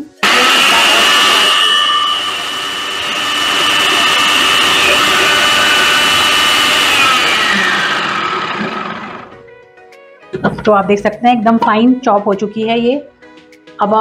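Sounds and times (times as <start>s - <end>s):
food processor whining: 0.0s - 9.4s.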